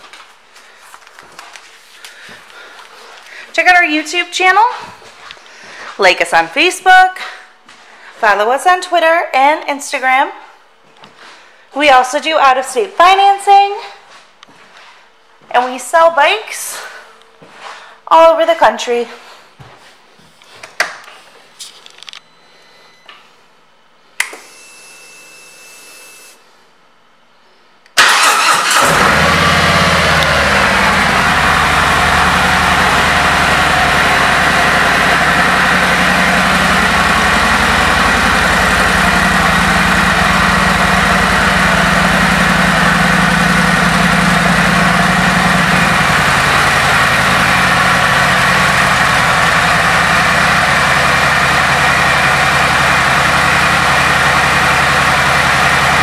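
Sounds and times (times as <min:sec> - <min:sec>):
motorcycle engine starting and idling: 0:28.0 - 0:56.0.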